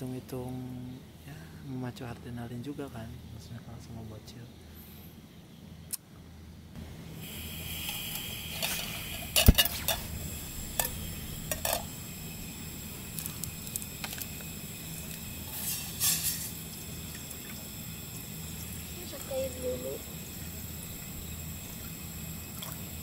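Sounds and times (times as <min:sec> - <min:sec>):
steady high hiss: 0:00.0 - 0:23.0
metal pot and plastic bottle clinking: 0:08.5 - 0:10.2, 0:10.8 - 0:11.9, 0:15.1 - 0:16.6.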